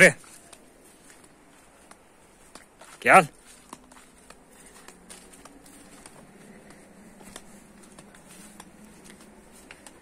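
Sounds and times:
footsteps through grass and leaves: 0.0s - 10.0s.

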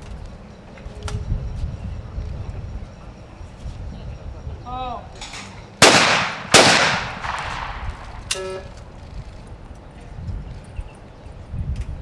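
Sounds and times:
shotgun shots with echo: 5.8s - 8.2s.

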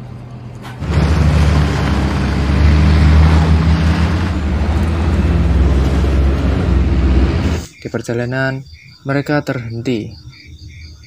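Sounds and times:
deep engine drone: 0.0s - 7.7s
tyres on dirt track: 0.0s - 8.4s.

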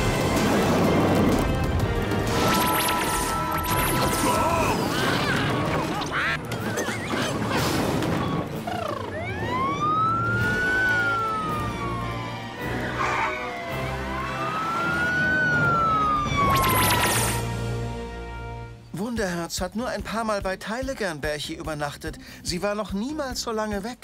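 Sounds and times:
background music: 0.0s - 24.0s
cartoon whistling glides: 2.4s - 5.4s, 8.1s - 11.8s, 12.6s - 17.4s.

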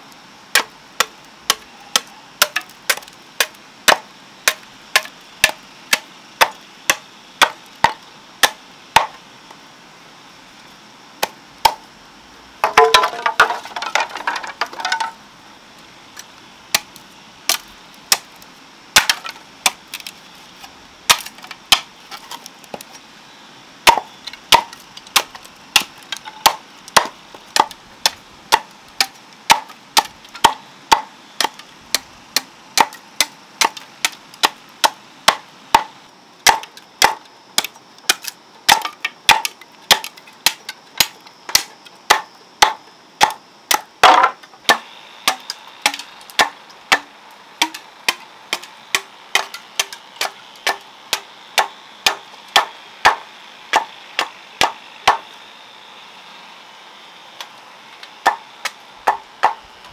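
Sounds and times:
machete chopping bamboo: 0.5s - 9.2s, 12.6s - 15.1s, 17.5s - 18.3s, 19.0s - 20.1s, 21.1s - 22.9s, 23.8s - 55.3s, 58.2s - 59.6s.

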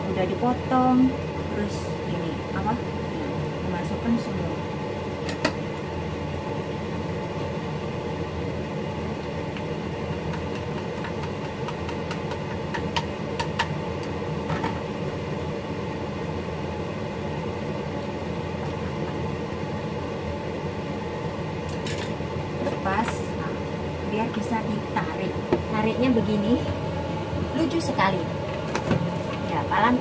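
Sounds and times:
steady mechanical hum: 0.0s - 30.0s.

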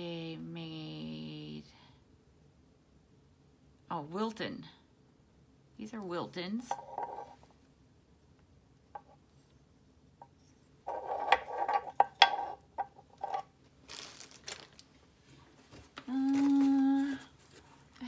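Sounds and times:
woman humming: 16.0s - 17.4s.

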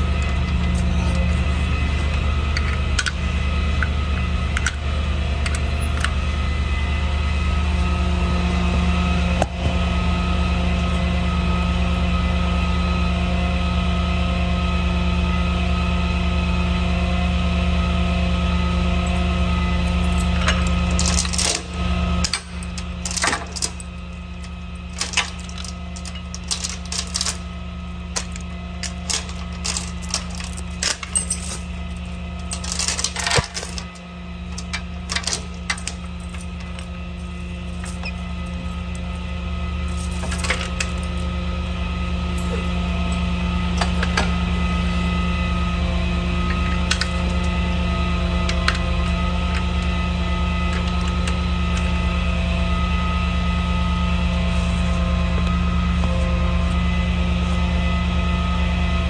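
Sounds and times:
truck engine humming: 0.0s - 59.0s
metallic clinks and clanks: 19.8s - 39.2s, 39.8s - 41.2s.

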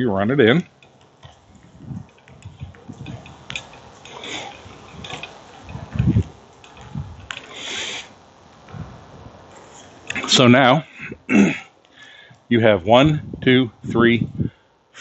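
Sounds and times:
brief gas rushing: 7.5s - 8.2s.

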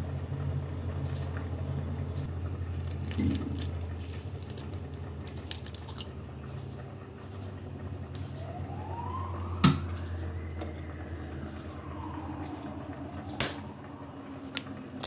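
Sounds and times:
faint siren wailing: 7.5s - 15.0s.

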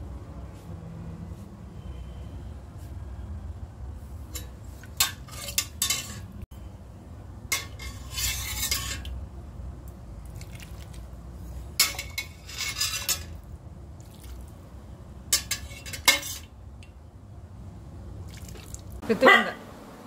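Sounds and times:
ladle clinking against metal pot: 4.3s - 6.3s, 7.5s - 9.1s, 11.8s - 13.4s, 15.3s - 16.5s
liquid sloshing: 10.2s - 11.2s, 14.0s - 14.6s, 18.2s - 19.0s.

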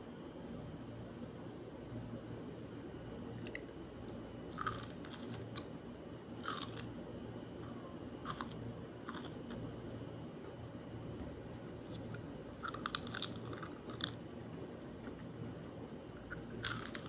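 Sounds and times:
crunching bites of onion: 4.5s - 5.7s, 6.4s - 6.9s, 7.6s - 9.6s, 16.4s - 17.0s.

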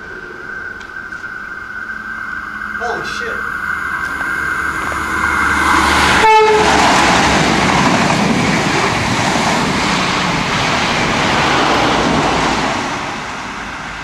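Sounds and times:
train passing at speed: 0.0s - 14.0s
train horn: 2.6s - 7.0s.

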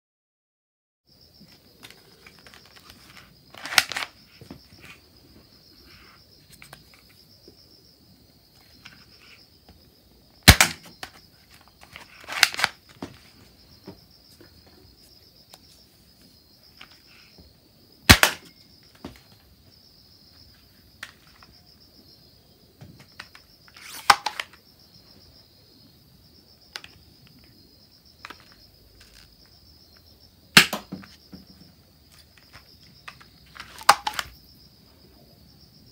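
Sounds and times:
loading and handling clicks: 1.8s - 4.1s, 11.9s - 12.8s
toy dart gun snaps: 10.5s - 10.9s, 30.6s - 30.9s.

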